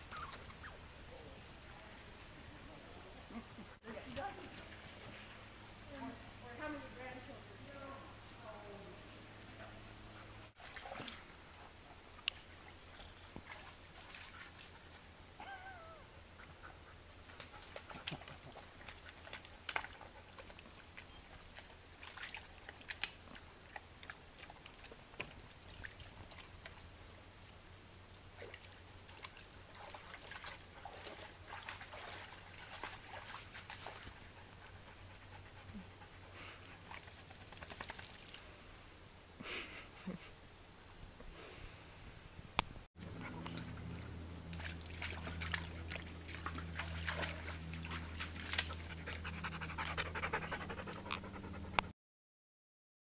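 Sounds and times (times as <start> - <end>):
dog wading in mud: 0.0 - 7.1, 9.4 - 27.6, 28.2 - 38.8, 43.0 - 51.7
dogs splashing in mud: 10.5 - 15.2, 16.4 - 26.8, 28.3 - 38.6, 43.0 - 51.0.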